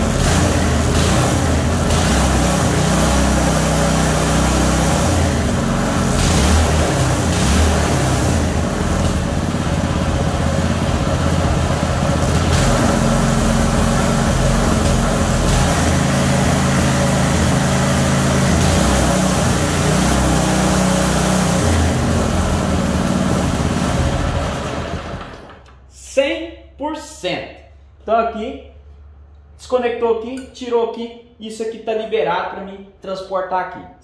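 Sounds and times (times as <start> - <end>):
small boat motor engine revving: 0.0 - 25.5.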